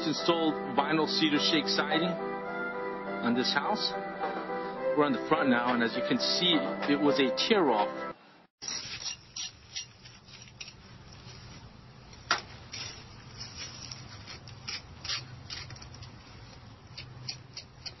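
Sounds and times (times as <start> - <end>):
scrapes and clicks on stone wall: 12.7 - 18.0.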